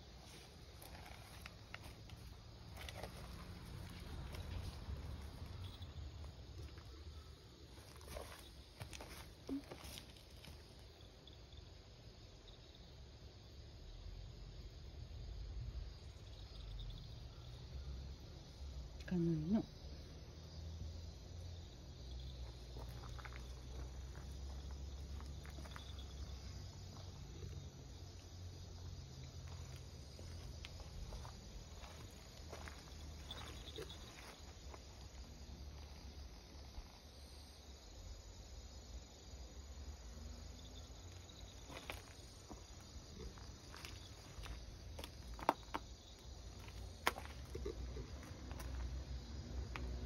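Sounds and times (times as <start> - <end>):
footsteps on dry leaves and gravel: 0.4 - 5.6, 22.8 - 26.2, 29.4 - 34.8, 41.6 - 48.9.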